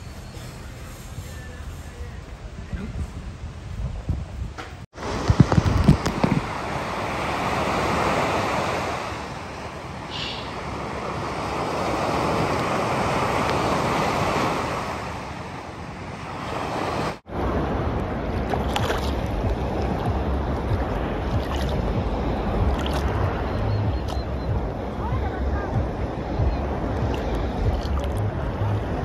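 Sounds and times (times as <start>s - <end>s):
wind rumble on microphone: 1.1s - 29.0s
sea waves breaking on beach: 5.0s - 29.0s
seawater splashes: 16.2s - 29.0s.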